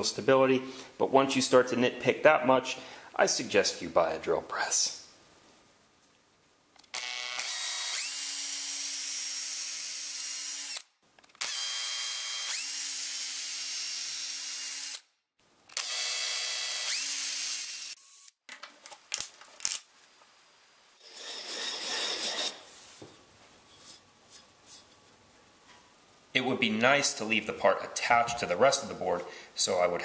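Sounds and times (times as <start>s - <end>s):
electric drill boring into wood: 6.9s - 15.1s, 15.8s - 18.3s.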